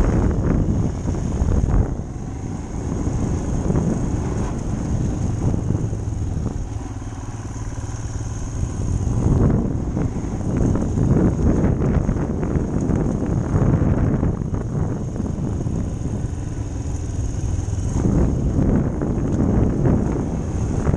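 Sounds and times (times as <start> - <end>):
motorcycle engine running: 0.0 - 20.9.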